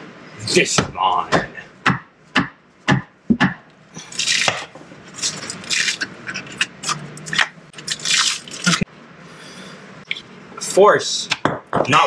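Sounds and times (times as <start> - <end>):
sharp knock: 0.8 - 3.6.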